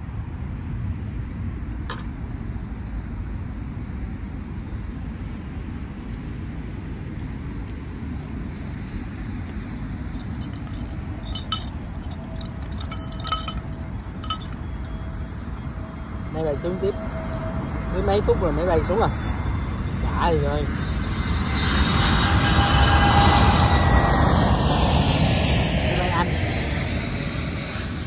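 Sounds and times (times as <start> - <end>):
steady low rumble: 0.0 - 28.0
metal spoon clinking on glass: 10.2 - 14.6.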